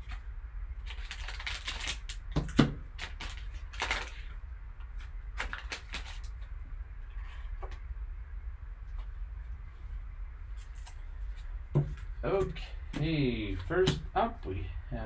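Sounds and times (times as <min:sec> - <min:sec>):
low steady hum: 0:00.0 - 0:15.0
foil wrapper crinkling and tearing: 0:00.8 - 0:04.4, 0:05.3 - 0:06.4.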